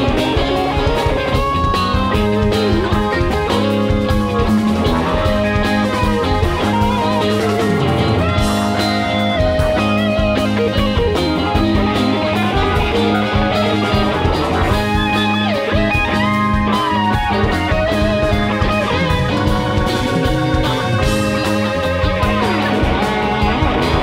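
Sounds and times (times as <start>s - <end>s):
bass line: 0.0s - 24.0s
drum kit: 0.0s - 24.0s
electric guitar solo: 0.0s - 24.0s.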